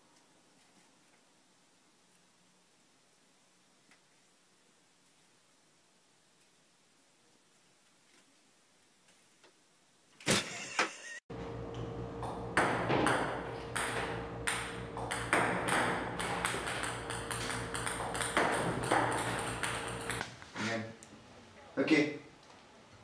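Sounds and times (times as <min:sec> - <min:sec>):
sharp knocks: 0:12.2 - 0:20.2
table tennis balls bouncing: 0:12.2 - 0:20.2.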